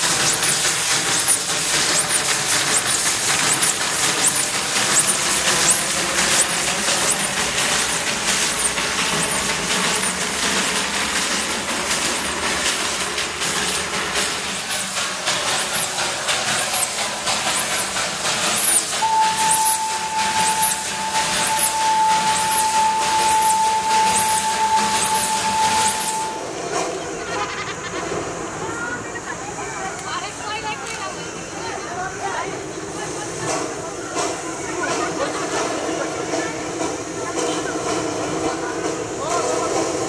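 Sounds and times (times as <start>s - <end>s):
hiss of steam: 0.0s - 40.0s
steam locomotive exhaust chuffing: 0.0s - 40.0s
steam whistle blast: 3.4s - 12.8s, 18.5s - 26.6s.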